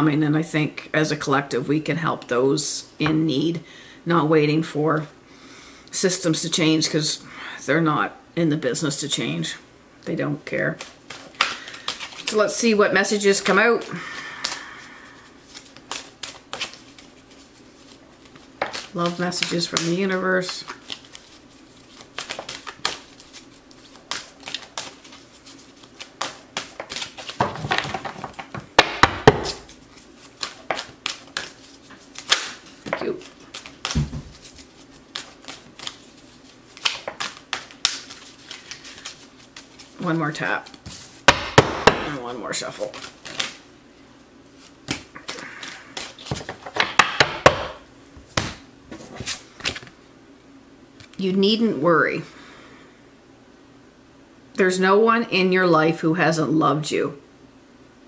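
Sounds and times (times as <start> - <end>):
cards being shuffled by hand: 10.5 - 41.3, 42.1 - 43.6, 44.5 - 47.3, 48.4 - 50.0
cards tapping and clicking: 18.6 - 20.1, 26.0 - 29.7, 30.3 - 36.0.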